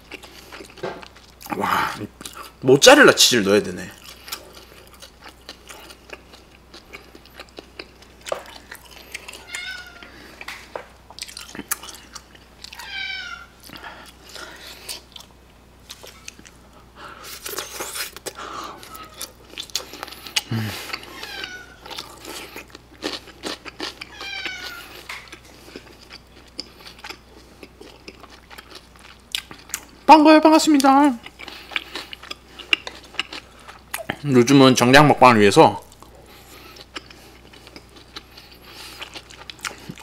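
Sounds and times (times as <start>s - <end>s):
chewing and crunching food: 0.0s - 2.6s, 3.7s - 34.8s, 35.8s - 40.0s
cat meowing: 9.4s - 10.2s, 12.7s - 13.6s, 18.8s - 19.3s, 21.1s - 21.8s, 24.1s - 25.0s.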